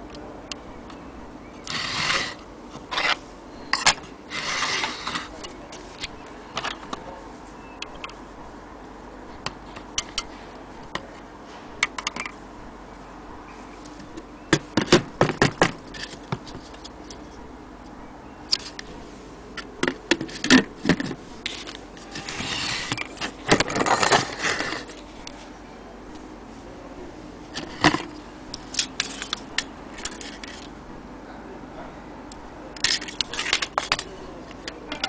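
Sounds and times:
rubbing and knocking handling noise: 1.6 - 8.5, 13.8 - 17.5, 18.5 - 25.6, 27.4 - 30.8, 32.8 - 35.0.

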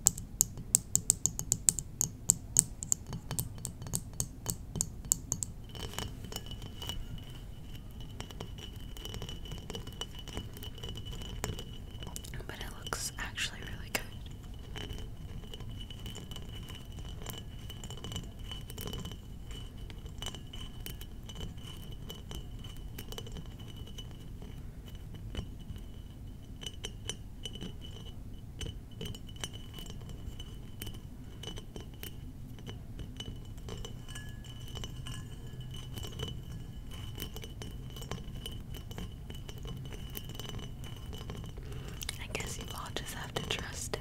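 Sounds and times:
tapping on glass bottles: 0.0 - 44.0.

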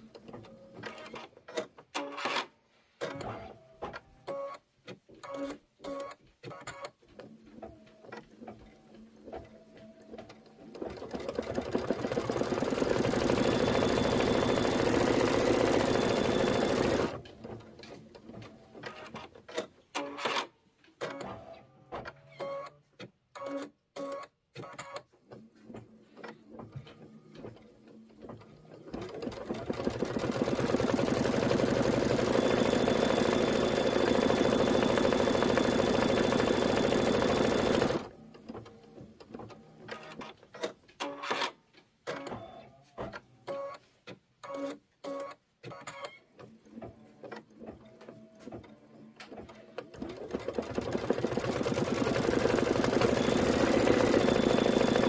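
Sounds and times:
embroidery machine stitching: 10.7 - 17.3, 28.2 - 38.1, 49.4 - 55.0
machine clicks: 29.0 - 38.1, 49.3 - 55.0.

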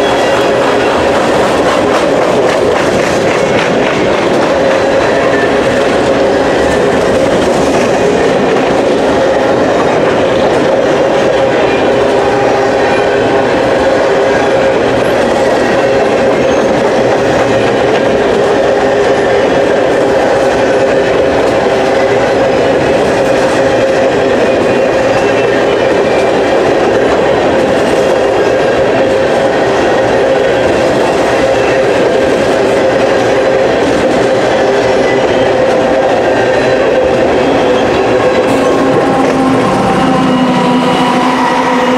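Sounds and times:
train wheels rumbling on rails: 0.0 - 41.9
humming tone: 37.2 - 41.9.

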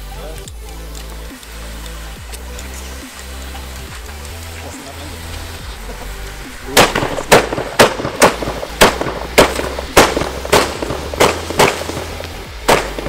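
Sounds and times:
firecrackers banging: 0.5 - 13.0.

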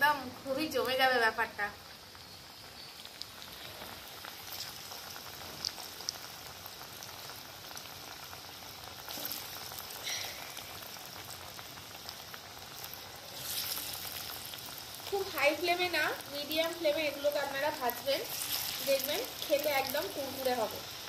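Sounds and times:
batter deep-frying in oil: 0.0 - 21.0
oil popping and spitting: 9.0 - 11.0, 12.8 - 14.4.

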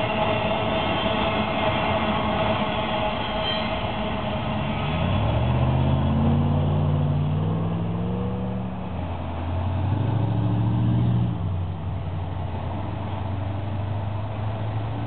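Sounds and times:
car engine passing: 4.8 - 15.0
pickup truck pulling away: 4.9 - 15.0.

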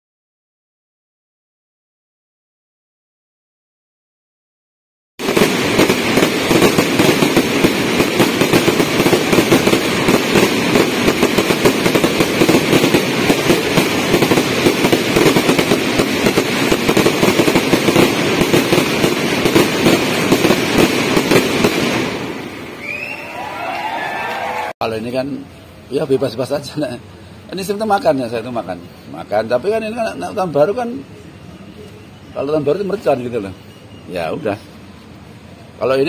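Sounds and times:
fireworks bangs: 5.2 - 24.7
fireworks crackling: 5.2 - 24.7.

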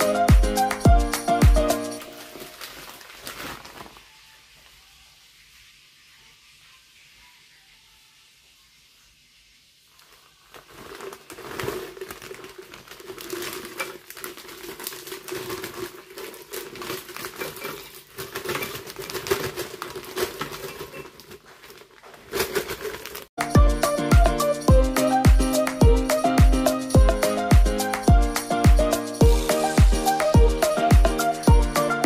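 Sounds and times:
music: 0.0 - 2.5, 23.4 - 32.0
plastic bag crinkling: 2.0 - 5.0, 9.9 - 23.4.

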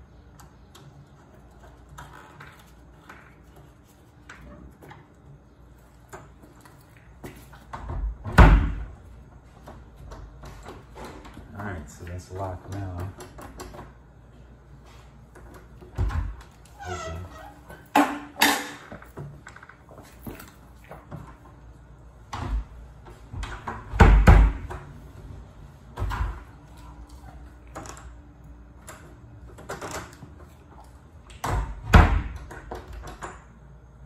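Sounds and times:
heavy door thumps: 7.8 - 9.0, 23.3 - 24.8, 31.4 - 32.5.

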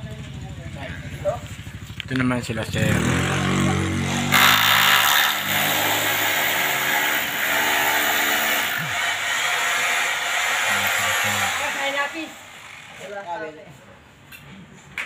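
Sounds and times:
small engine running: 2.8 - 13.3.

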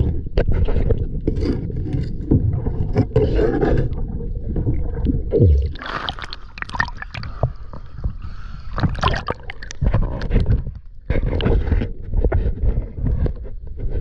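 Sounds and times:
bubbly crackles and splashes: 0.0 - 13.2
water sloshing and gurgling: 0.0 - 14.0
low churning rumble: 4.0 - 11.2.

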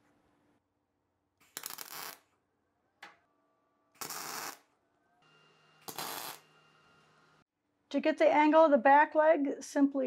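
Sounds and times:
welding arc bursts: 1.5 - 2.2, 4.0 - 4.6, 5.8 - 6.4.

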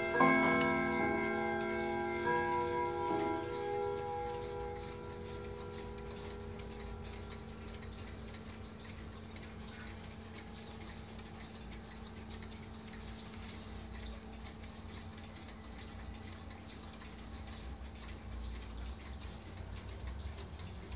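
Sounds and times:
clock chime ringing: 0.0 - 8.3
pendulum clocks ticking: 0.0 - 20.9.

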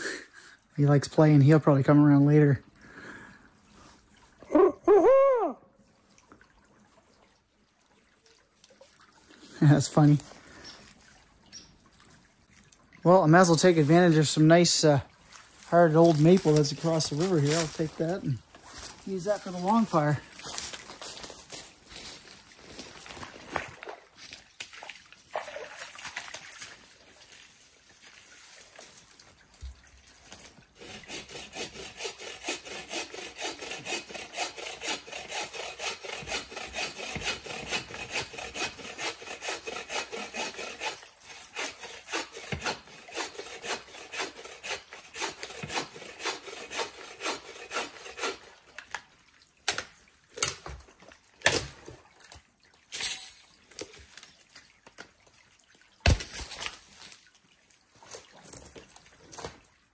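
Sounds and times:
hand saw cutting wood: 15.6 - 22.2, 30.3 - 48.8.

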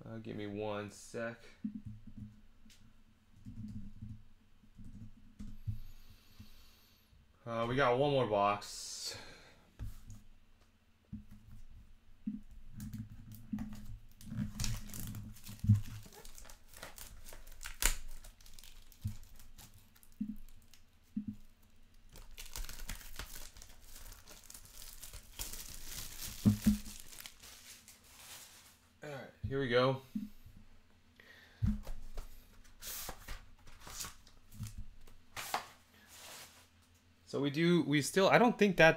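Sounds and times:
plastic wrap crinkling and tearing: 13.3 - 28.8.

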